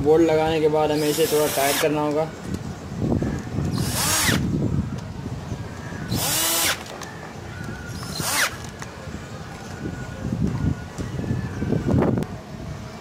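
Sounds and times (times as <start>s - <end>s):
power drill short bursts: 1.0s - 1.9s, 3.8s - 4.4s, 6.1s - 6.8s, 8.0s - 8.6s.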